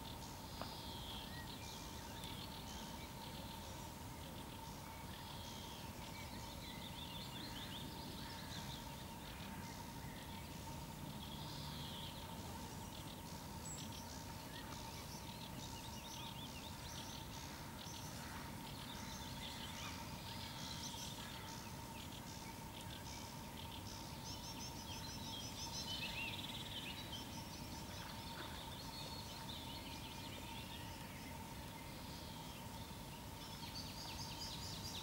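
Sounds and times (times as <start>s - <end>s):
small birds singing: 0.0s - 35.0s
steady thin hum: 0.0s - 35.0s.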